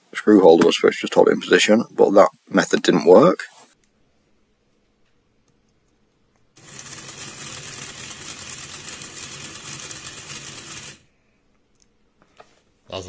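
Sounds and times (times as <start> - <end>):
small motor whirring rattle: 6.6 - 11.1.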